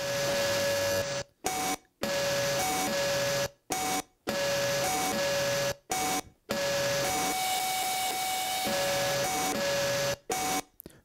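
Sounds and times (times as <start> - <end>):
buzzy electronic tone switching pitch: 0.0 - 1.2, 4.3 - 10.6.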